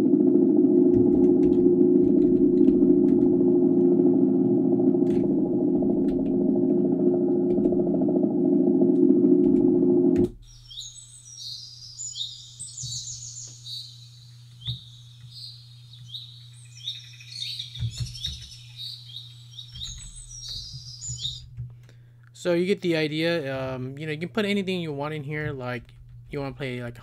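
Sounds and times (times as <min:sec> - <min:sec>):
low-pitched ambient drone: 0:00.0 - 0:10.4
faint low hum: 0:00.0 - 0:27.0
birds chirping and singing: 0:10.5 - 0:21.5.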